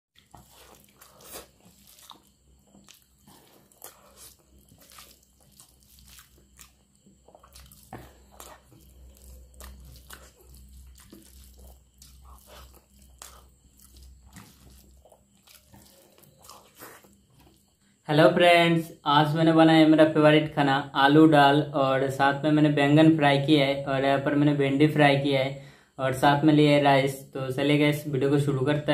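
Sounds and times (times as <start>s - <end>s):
man chewing food: 0.1s - 18.0s.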